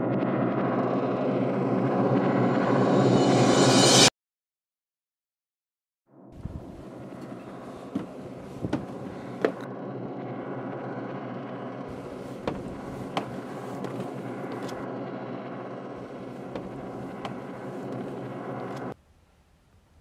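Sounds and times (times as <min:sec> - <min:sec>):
low drone: 0:00.0 - 0:04.1, 0:06.2 - 0:19.0
footsteps on wooden steps: 0:07.2 - 0:09.6, 0:11.9 - 0:14.8, 0:16.0 - 0:18.9.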